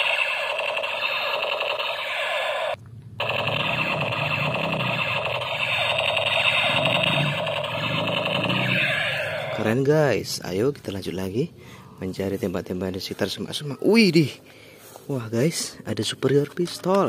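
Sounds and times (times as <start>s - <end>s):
toy gun electronic warble: 0.0s - 9.6s.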